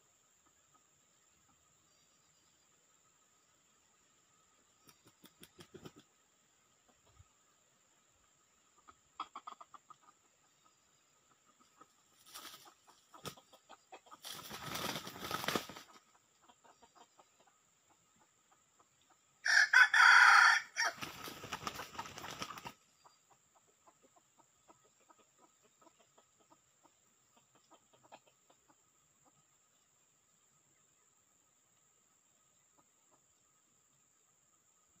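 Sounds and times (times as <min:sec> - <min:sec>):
rooster crowing: 0:19.4 - 0:21.1.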